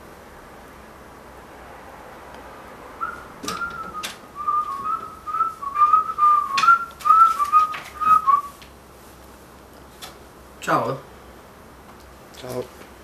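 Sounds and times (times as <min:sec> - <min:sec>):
person whistling a tune: 0:03.0 - 0:08.6.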